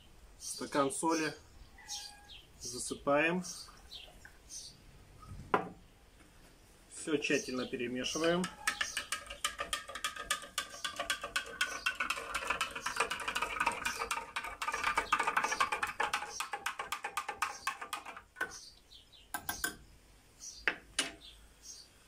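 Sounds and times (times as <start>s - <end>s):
metal spoon clinking against glass: 8.4s - 17.0s.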